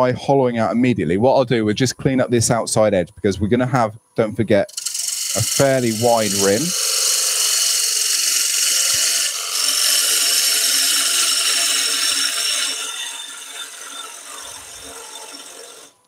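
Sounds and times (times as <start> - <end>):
gouge shearing wood shavings: 4.7 - 15.9
lathe humming: 4.7 - 16.0.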